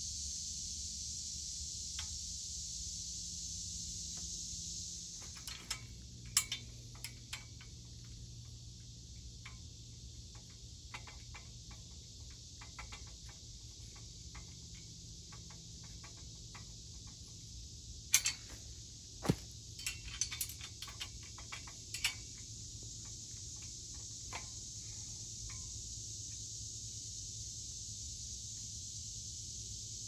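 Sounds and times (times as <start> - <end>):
high insect buzz: 0.0 - 10.8, 12.0 - 20.9
wrench clicking on metal: 5.3 - 7.7, 10.3 - 16.7, 18.1 - 18.5, 19.8 - 22.5
sharp metal clack: 18.1 - 18.6.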